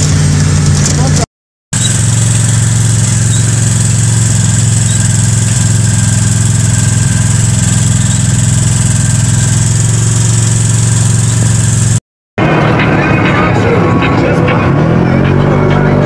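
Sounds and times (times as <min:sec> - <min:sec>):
off-road vehicle engine running: 0:00.0 - 0:16.0
thin high whine: 0:01.8 - 0:13.9.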